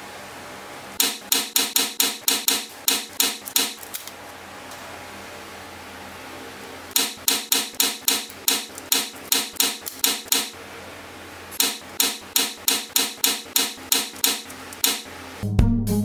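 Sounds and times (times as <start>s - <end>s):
magnetic balls clicking together: 1.0s - 4.0s, 6.9s - 10.5s, 11.6s - 15.1s.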